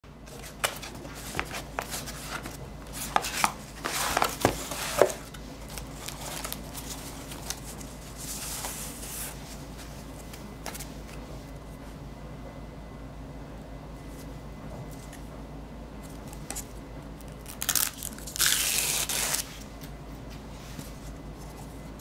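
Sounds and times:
packing sheet rustling: 0:00.3 - 0:09.4.

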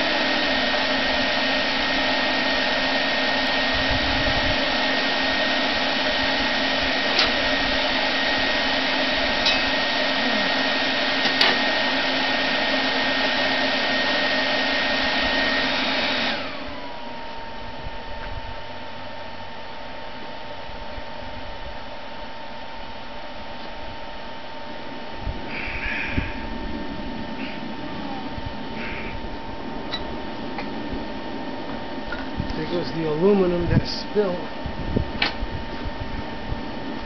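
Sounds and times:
electric air blower whining: 0:00.0 - 0:37.0.

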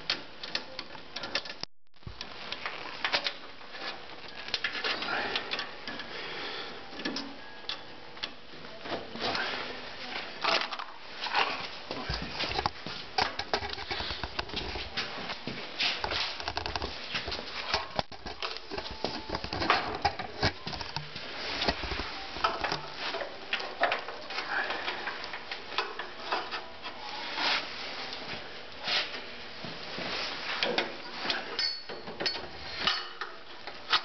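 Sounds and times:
handling clicks and rustling: 0:15.9 - 0:24.5.

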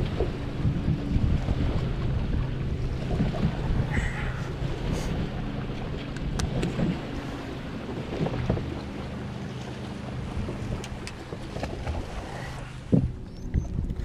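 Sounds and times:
steady low hum: 0:00.0 - 0:14.0
water lapping against boat hull: 0:00.0 - 0:14.0
wind buffeting microphone: 0:00.0 - 0:14.0
light knocks in boat: 0:08.0 - 0:09.7, 0:10.4 - 0:12.1, 0:12.8 - 0:14.0.

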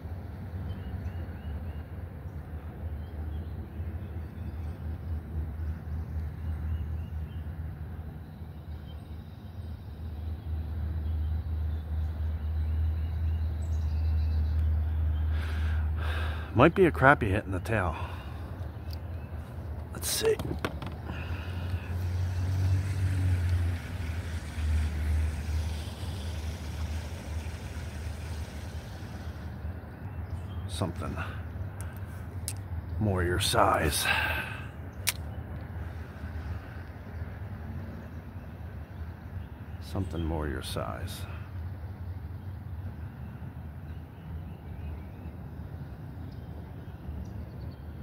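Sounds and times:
water noise: 0:14.6 - 0:37.9.

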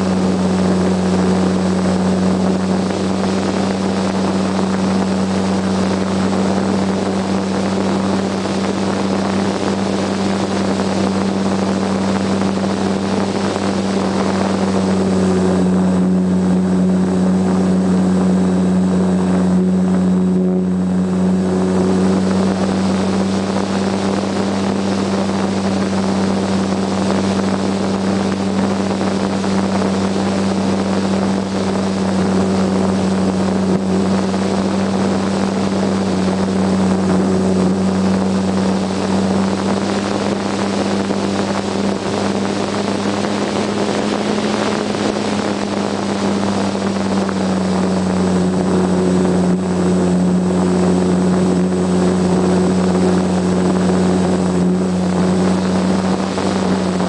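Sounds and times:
electric motor and propeller drone: 0:00.0 - 0:57.0.

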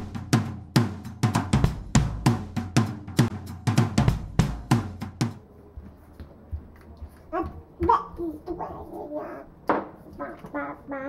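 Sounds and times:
drum kit playing: 0:00.0 - 0:05.5.

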